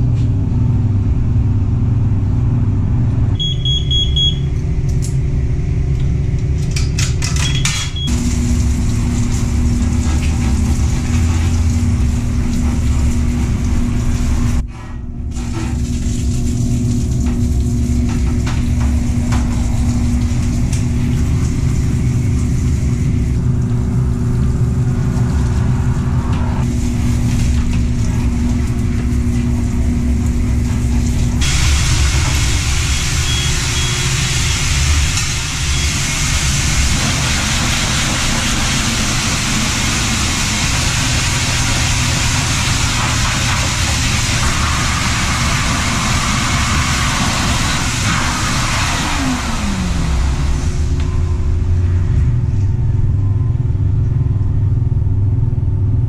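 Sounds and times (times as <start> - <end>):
spray pump humming: 7.9 - 14.6, 15.3 - 52.7
blow dryer air rush: 8.1 - 14.7, 16.9 - 53.2.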